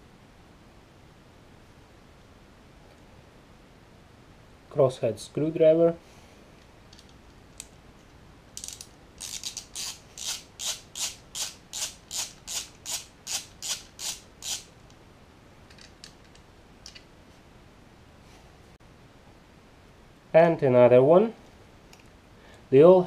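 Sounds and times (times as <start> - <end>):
ratcheting screwdriver clicks: 8.6 - 14.7.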